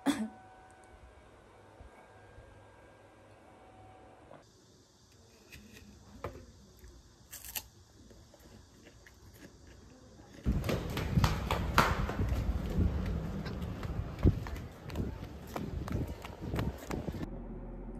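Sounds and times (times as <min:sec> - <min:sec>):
running footsteps: 0:10.4 - 0:17.3.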